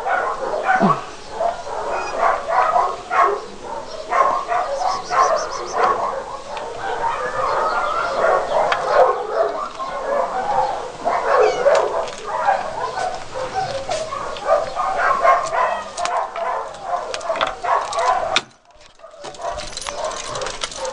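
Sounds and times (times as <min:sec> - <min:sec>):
dog whining and yipping: 0:01.9 - 0:02.4, 0:11.2 - 0:11.9.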